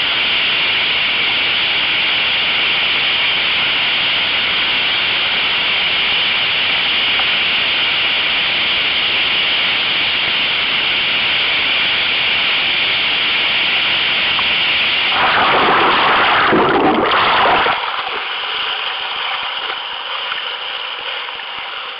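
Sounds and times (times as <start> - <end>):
churning water splashing: 14.2 - 21.9
whitewater rushing: 15.0 - 21.9.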